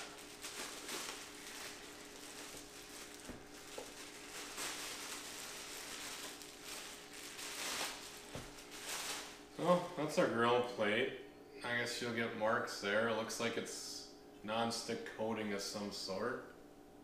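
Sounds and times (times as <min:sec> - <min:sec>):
plastic bag rustling: 0:00.0 - 0:09.6.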